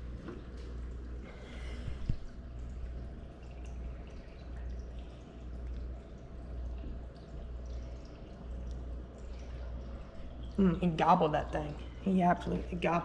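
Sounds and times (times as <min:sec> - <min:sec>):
aquarium filter humming: 0:00.0 - 0:13.0
water trickling and dripping: 0:00.0 - 0:13.0.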